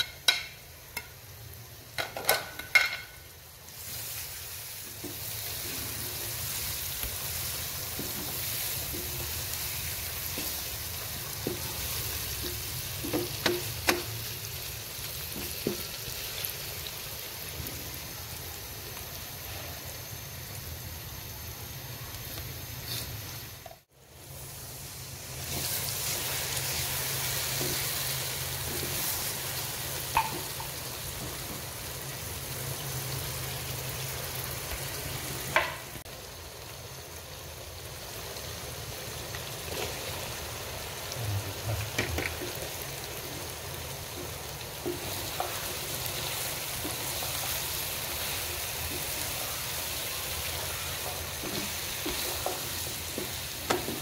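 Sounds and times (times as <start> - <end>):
utensil knocking on pan: 0.0 - 1.1, 13.0 - 14.1, 30.2 - 30.5
masala sizzling in oil: 0.0 - 54.0
spatula stirring okra: 3.8 - 14.1, 44.1 - 54.0.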